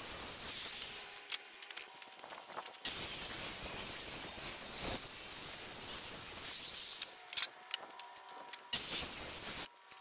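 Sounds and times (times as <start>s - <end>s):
circular saw cutting wood: 0.0s - 1.4s, 2.8s - 7.3s.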